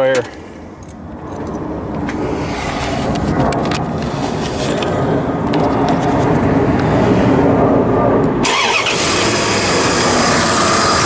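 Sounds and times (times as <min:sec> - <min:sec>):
truck engine cranking and starting: 0:08.4 - 0:11.0.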